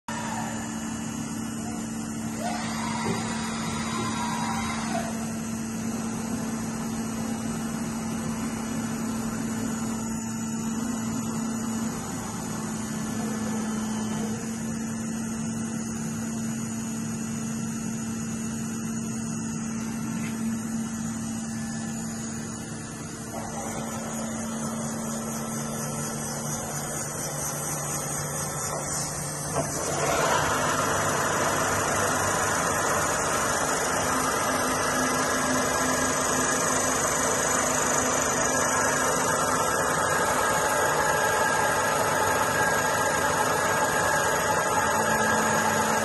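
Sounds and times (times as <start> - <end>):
milling machine humming: 0.1 - 46.0
rising whine: 17.2 - 46.0.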